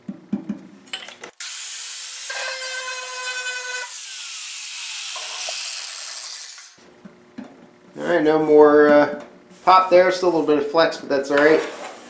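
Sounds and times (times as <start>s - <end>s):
angle grinder on steel: 1.4s - 6.8s.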